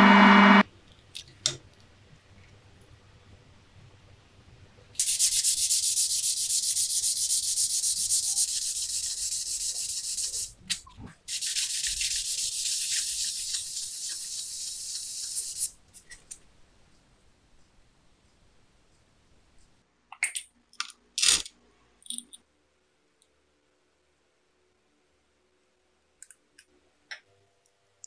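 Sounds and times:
plexiglass rubbed on sandpaper: 0:05.0 - 0:10.5, 0:11.3 - 0:15.8.

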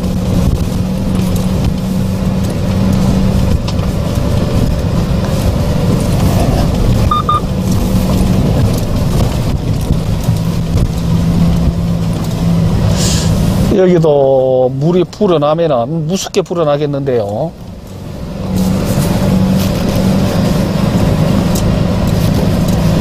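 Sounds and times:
diesel engine running: 0:00.0 - 0:23.0
short double beep: 0:07.1 - 0:07.4.

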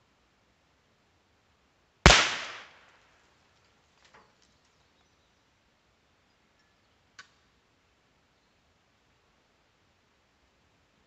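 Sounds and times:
rifle shot tail: 0:02.1 - 0:02.8.

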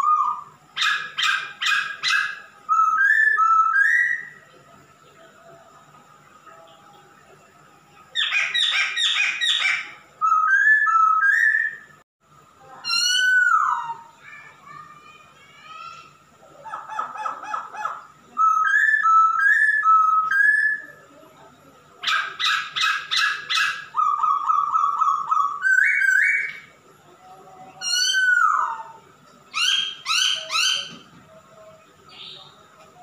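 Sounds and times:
bird singing whistled phrases: 0:00.0 - 0:04.4, 0:08.2 - 0:11.9, 0:12.8 - 0:14.1, 0:18.4 - 0:21.0, 0:22.2 - 0:26.7, 0:27.8 - 0:31.1.

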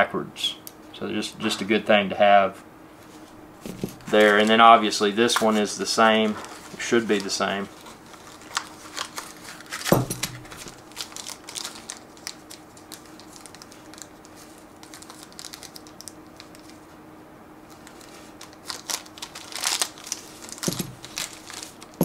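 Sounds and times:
plastic bag crinkling: 0:05.3 - 0:16.9, 0:17.7 - 0:22.0.

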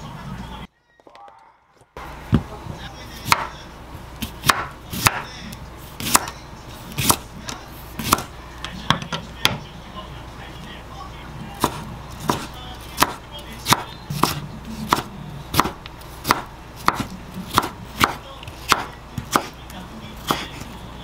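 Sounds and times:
knife chopping on wooden board: 0:03.2 - 0:03.5, 0:04.2 - 0:05.3, 0:06.0 - 0:07.2, 0:08.0 - 0:08.3, 0:11.6 - 0:19.6, 0:20.2 - 0:20.7.

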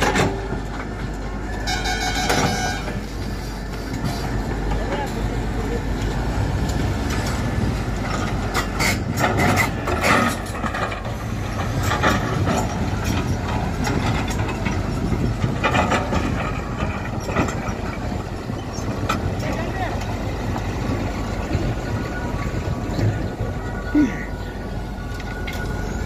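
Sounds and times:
excavator running: 0:00.0 - 0:26.0.

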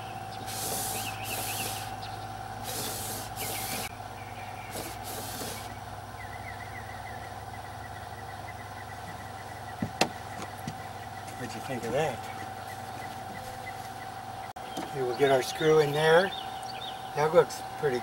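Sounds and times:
wiper motor humming: 0:00.0 - 0:18.0
bursts of hiss: 0:00.4 - 0:02.0, 0:02.6 - 0:03.9, 0:04.6 - 0:05.8.

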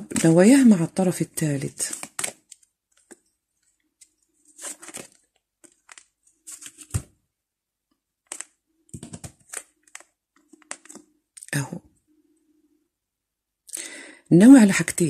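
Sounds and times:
cards riffling and sliding: 0:02.0 - 0:03.3, 0:04.0 - 0:07.1, 0:08.3 - 0:11.0
cards knocking on table: 0:08.9 - 0:09.4.

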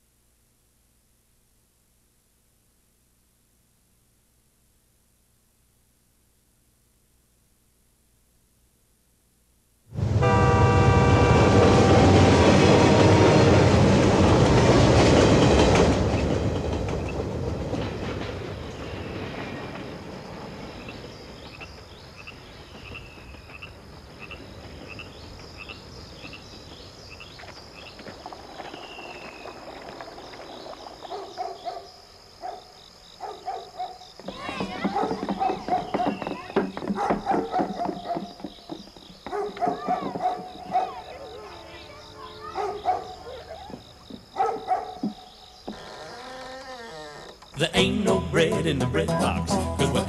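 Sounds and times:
locomotive air horn: 0:10.0 - 0:13.9
train engine and rail rumble: 0:10.0 - 0:31.0.

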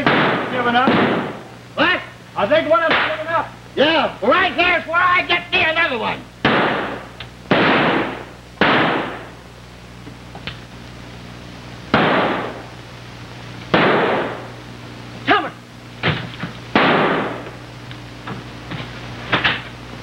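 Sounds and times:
pistol shots echoing: 0:00.0 - 0:01.5, 0:06.4 - 0:09.3, 0:11.9 - 0:12.7, 0:13.7 - 0:14.4, 0:16.7 - 0:17.4.

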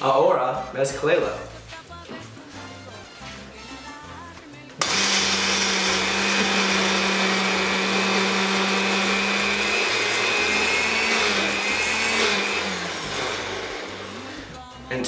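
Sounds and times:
blender motor whine: 0:04.8 - 0:14.6
ingredients churning: 0:04.8 - 0:14.6.

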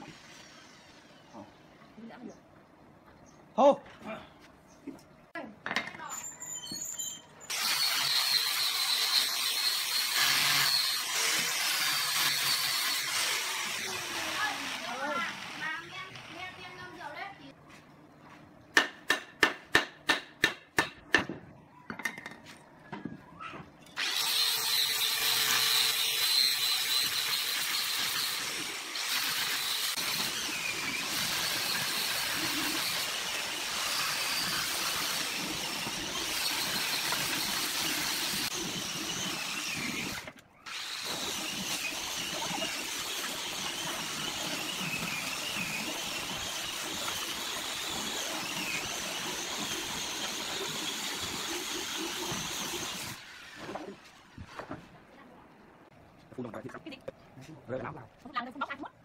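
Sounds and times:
angle grinder sanding wood: 0:07.5 - 0:16.8, 0:24.0 - 0:54.1.

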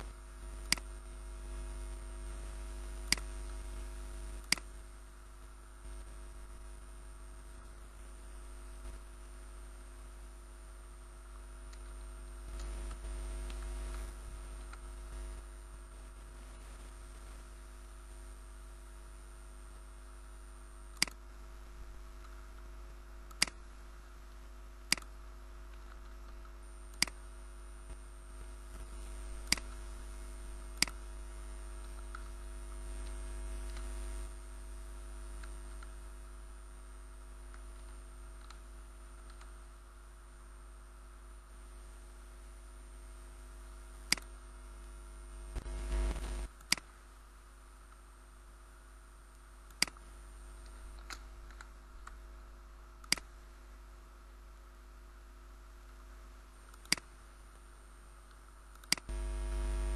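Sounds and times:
electrical hum: 0:00.0 - 0:59.9
computer mouse clicks: 0:00.6 - 0:00.9, 0:03.0 - 0:03.6, 0:04.4 - 0:04.7, 0:20.9 - 0:21.2, 0:23.3 - 0:23.6, 0:24.9 - 0:25.1, 0:25.7 - 0:27.3, 0:29.4 - 0:29.8, 0:37.5 - 0:39.6, 0:44.0 - 0:44.4, 0:46.4 - 0:47.0, 0:49.7 - 0:52.2, 0:53.0 - 0:53.3, 0:56.6 - 0:57.1, 0:58.3 - 0:59.1.

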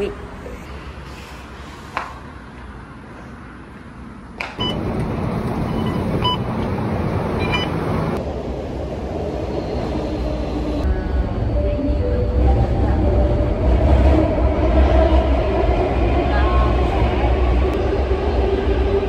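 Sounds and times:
bus engine and road rumble: 0:00.0 - 0:19.0
train running rumble: 0:04.6 - 0:19.0
short electronic beeps: 0:05.7 - 0:06.4, 0:07.4 - 0:07.8.

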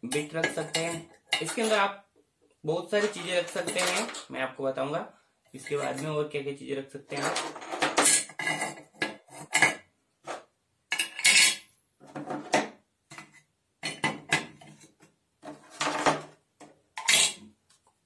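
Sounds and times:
tools clattering into metal holder: 0:00.1 - 0:01.8, 0:03.0 - 0:04.3, 0:07.1 - 0:09.8, 0:10.9 - 0:11.6.

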